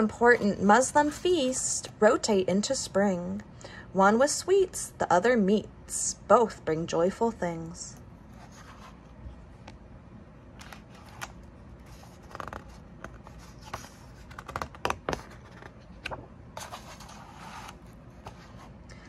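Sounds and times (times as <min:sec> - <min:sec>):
paper page rustling and scraping: 0:08.4 - 0:09.1, 0:10.6 - 0:18.8.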